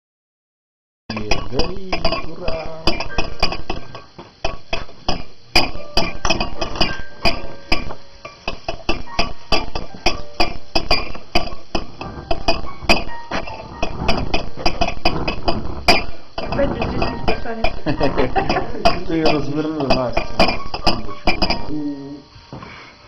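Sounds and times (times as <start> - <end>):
glasses clinking: 1.1 - 21.9
background music: 5.5 - 22.5.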